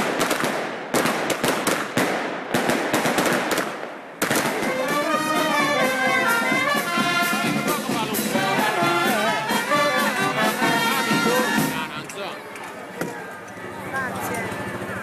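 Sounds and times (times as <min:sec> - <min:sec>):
firecrackers banging: 0:00.0 - 0:13.5
brass band playing: 0:04.3 - 0:12.1.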